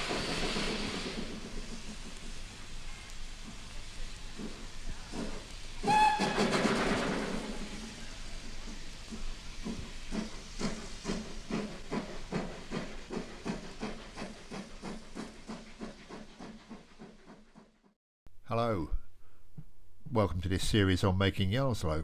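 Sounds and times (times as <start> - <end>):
locomotive exhaust chuffs: 0.0 - 17.9
steam hissing: 0.0 - 17.9
steam locomotive whistle: 5.8 - 7.9.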